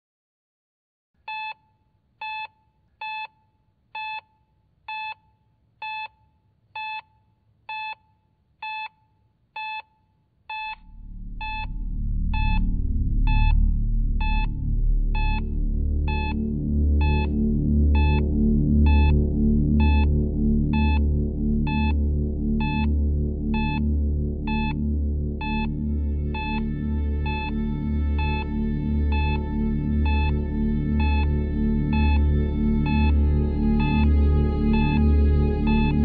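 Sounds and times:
heart monitor beeps: 0:01.3 - 0:01.6, 0:02.2 - 0:03.4, 0:04.0 - 0:04.3, 0:04.9 - 0:06.2, 0:06.8 - 0:07.1, 0:07.7 - 0:08.0, 0:08.6 - 0:09.0, 0:09.6 - 0:09.9, 0:10.5 - 0:10.8
deep drone: 0:10.8 - 0:36.0.

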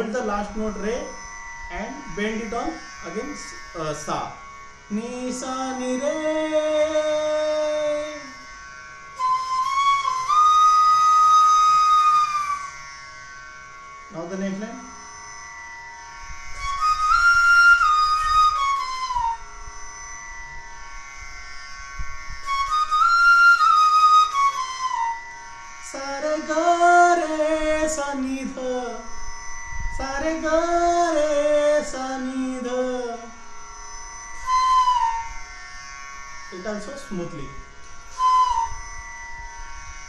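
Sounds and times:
man singing: 0:04.9 - 0:08.4, 0:25.9 - 0:29.1, 0:30.0 - 0:33.4
bamboo flute playing: 0:05.4 - 0:13.0, 0:14.8 - 0:36.8, 0:37.6 - 0:40.0.

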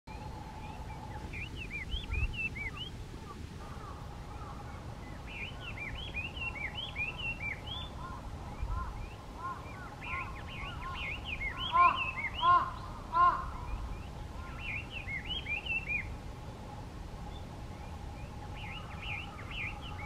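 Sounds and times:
bird singing whistled notes: 0:00.1 - 0:03.4, 0:05.0 - 0:12.9, 0:13.6 - 0:16.2, 0:17.2 - 0:20.0
faint steady hum: 0:00.1 - 0:20.0.

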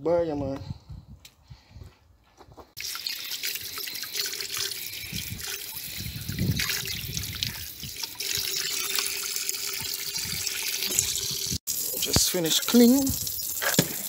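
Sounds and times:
tap water running: 0:02.8 - 0:14.0
water splashing into a bowl: 0:02.8 - 0:14.0.

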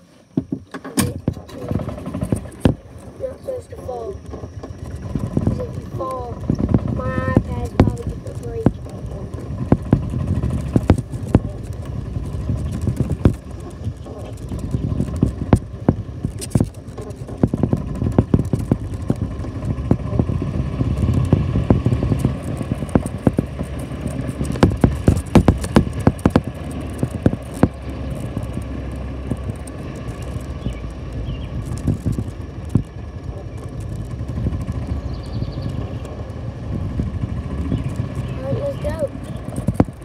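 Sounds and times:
golf cart motor running: 0:00.0 - 0:40.0
rattles and sharp knocks: 0:00.3 - 0:40.0.

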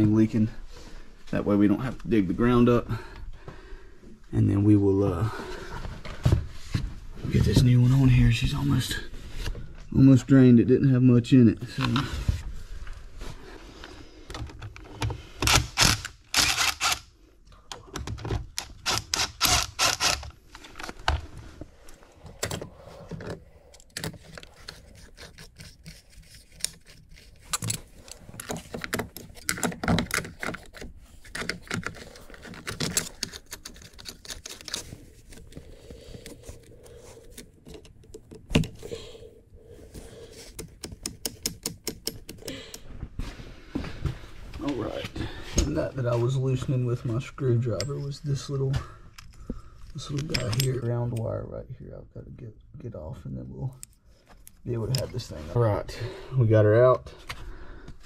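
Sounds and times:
screwdriver rapid clicks: 0:15.4 - 0:17.0.

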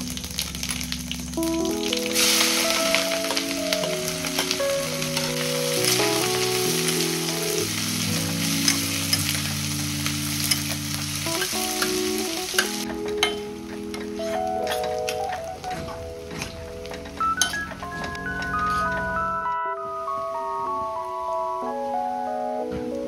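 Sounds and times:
onions sizzling in hot oil: 0:00.0 - 0:13.4
metal spoon clinking against pan: 0:17.4 - 0:17.8.

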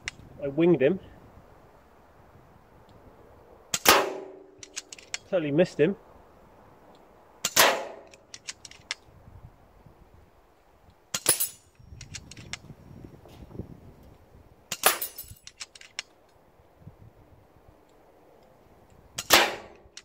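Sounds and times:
air rifle shots: 0:03.7 - 0:05.0, 0:07.4 - 0:08.5, 0:19.2 - 0:19.9
light clicks: 0:11.8 - 0:12.7.

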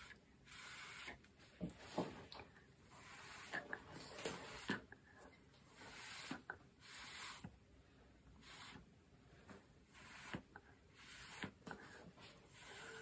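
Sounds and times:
soft airy puffs through a straw: 0:00.0 - 0:05.0, 0:05.6 - 0:07.6, 0:08.4 - 0:13.0.

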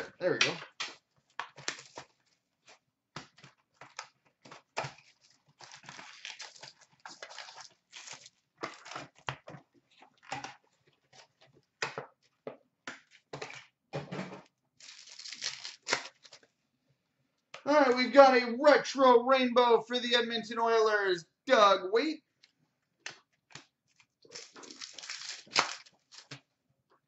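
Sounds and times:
cards rustling and scraping: 0:14.8 - 0:16.5, 0:23.1 - 0:26.4.

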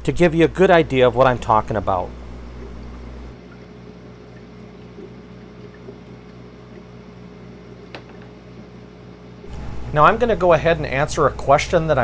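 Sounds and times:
low mechanical hum: 0:00.0 - 0:12.0
water sloshing: 0:02.1 - 0:06.9.

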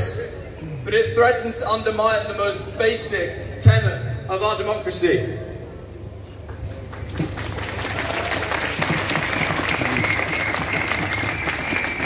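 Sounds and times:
crowd applauding: 0:06.9 - 0:12.0.

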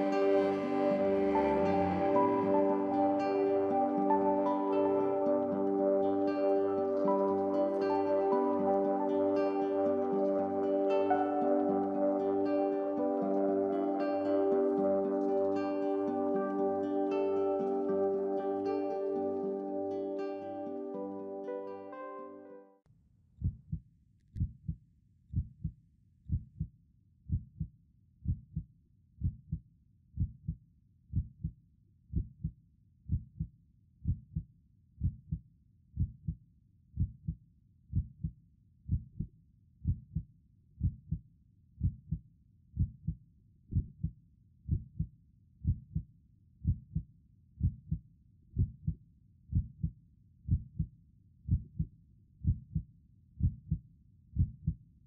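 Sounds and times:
heartbeat thumping: 0:24.4 - 0:25.7, 0:26.3 - 0:26.7, 0:27.3 - 0:28.6, 0:29.2 - 0:29.6, 0:30.2 - 0:31.5, 0:32.1 - 0:32.5, 0:33.1 - 0:34.4, 0:35.0 - 0:35.4, 0:36.0 - 0:36.4, 0:37.0 - 0:38.3, 0:42.8 - 0:44.1, 0:44.7 - 0:46.0, 0:46.6 - 0:47.0, 0:47.6 - 0:48.0, 0:48.6 - 0:49.9, 0:50.5 - 0:50.9, 0:51.5 - 0:52.8, 0:53.4 - 0:53.8, 0:54.4 - 0:54.8.

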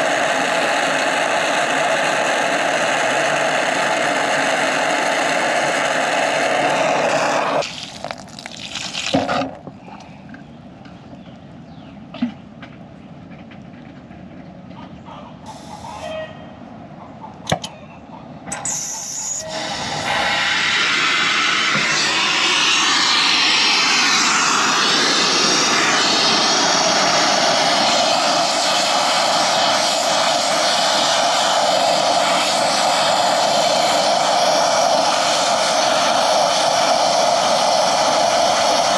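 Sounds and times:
torch flame hissing: 0:00.0 - 0:09.3, 0:18.7 - 0:38.9.

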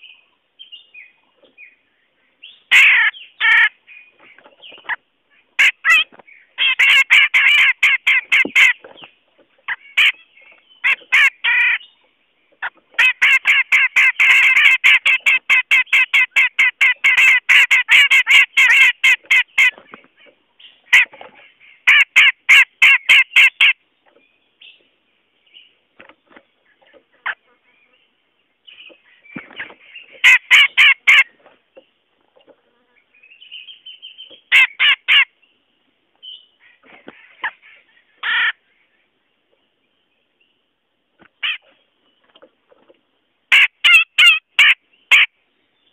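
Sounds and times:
bird chattering calls: 0:02.4 - 0:12.0, 0:12.6 - 0:23.8, 0:28.7 - 0:31.4, 0:43.5 - 0:45.3.

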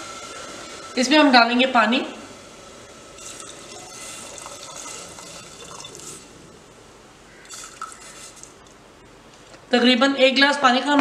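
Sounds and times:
water pouring into a pot: 0:02.6 - 0:06.4, 0:07.4 - 0:08.6.

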